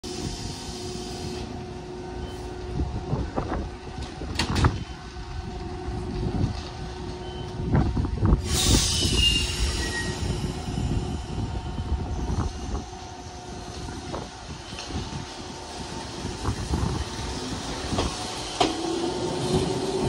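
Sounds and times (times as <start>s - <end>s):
train equipment humming: 0.1s - 20.0s
loud hiss: 8.4s - 11.3s.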